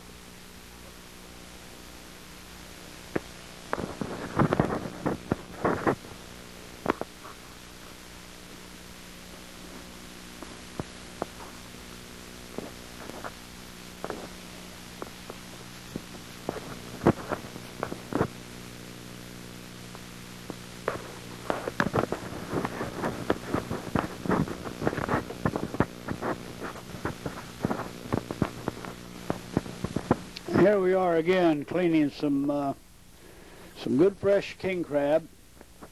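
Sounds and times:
electrical hum: 0:00.0 - 0:35.9
clicks and crackles: 0:00.8 - 0:30.7.

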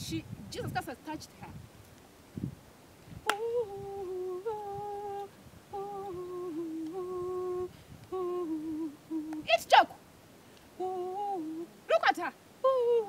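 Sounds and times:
person humming a slow tune: 0:03.2 - 0:09.5, 0:10.8 - 0:11.9, 0:12.6 - 0:13.0.

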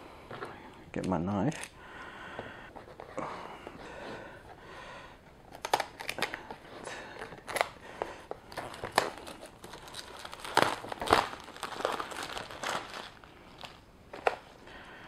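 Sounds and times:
plastic film crinkling: 0:05.5 - 0:14.6.

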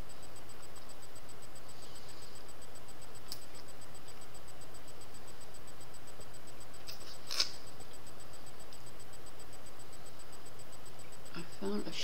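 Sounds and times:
steady hiss: 0:00.0 - 0:12.0
lollipop sucking clicks and smacks: 0:06.8 - 0:07.6.

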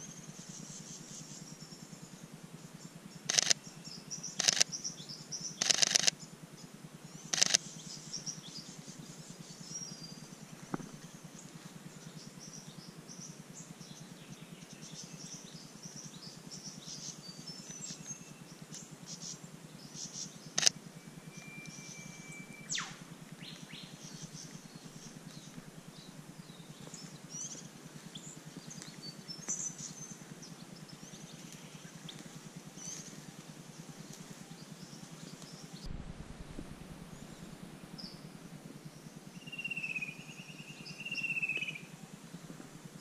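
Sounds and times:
small birds chirping: 0:00.0 - 0:20.8, 0:21.4 - 0:43.0
faint steady hum: 0:00.0 - 0:43.0
sharp click: 0:03.3 - 0:03.6, 0:05.6 - 0:06.2, 0:20.6 - 0:20.8
high whistle: 0:21.0 - 0:23.0.

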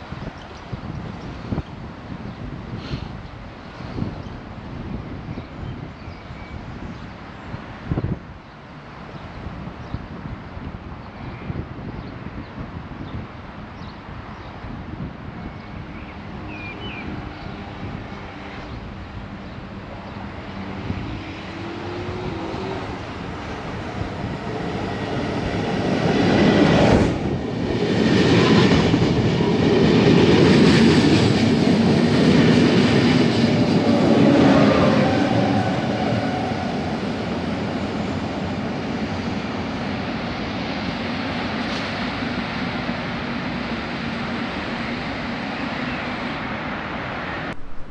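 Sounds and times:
train rumble: 0:17.2 - 0:45.7.

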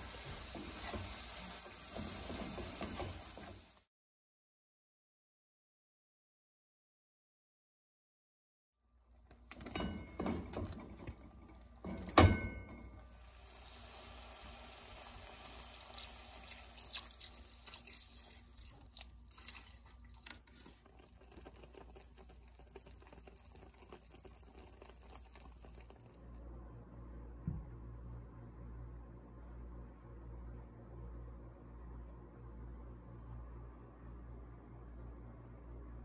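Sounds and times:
milk hissing in frying pan: 0:00.0 - 0:03.8, 0:13.1 - 0:26.2.

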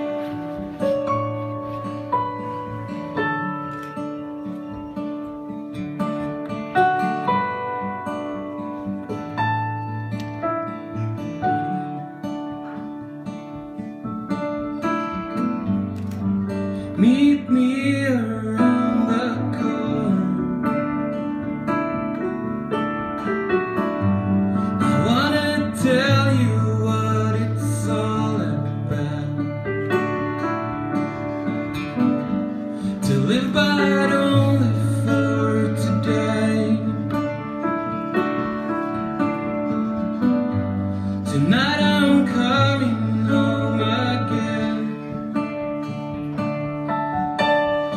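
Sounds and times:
acoustic guitar strumming: 0:00.0 - 0:47.9
keyboard piano chords: 0:00.0 - 0:47.9
man singing: 0:16.9 - 0:21.1, 0:24.8 - 0:30.1, 0:32.9 - 0:37.5, 0:41.2 - 0:45.6.

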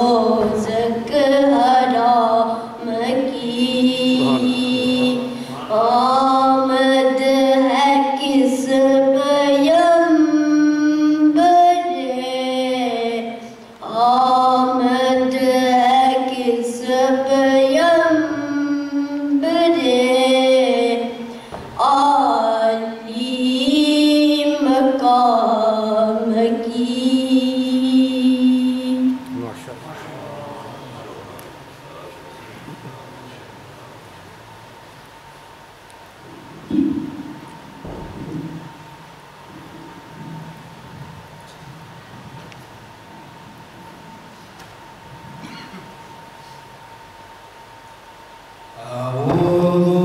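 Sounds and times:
boy chanting solo: 0:03.4 - 0:06.4.

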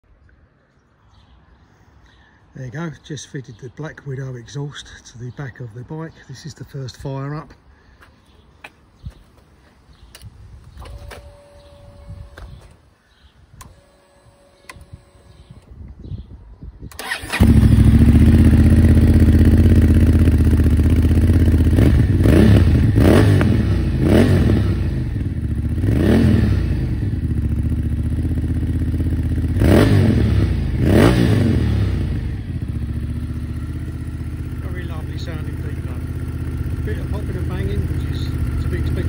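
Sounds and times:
engine throttle blips: 0:16.9 - 0:39.0
motorcycle engine idling: 0:17.0 - 0:39.0.

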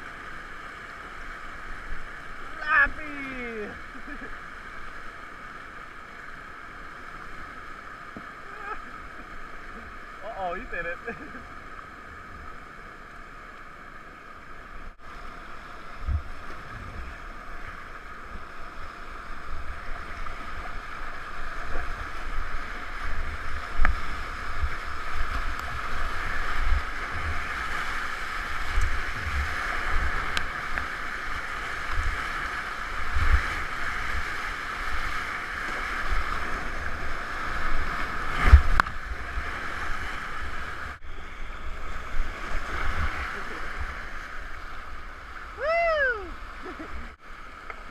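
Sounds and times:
whitewater rapids rushing: 0:02.4 - 0:04.9.

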